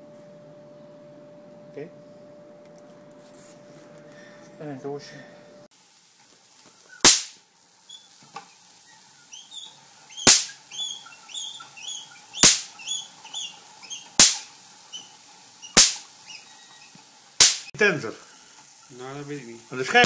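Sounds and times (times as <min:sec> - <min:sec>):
electric spark cracks: 0:07.0 - 0:07.6, 0:10.1 - 0:10.9, 0:12.4 - 0:13.2, 0:13.8 - 0:14.8, 0:15.6 - 0:16.4, 0:17.3 - 0:17.8.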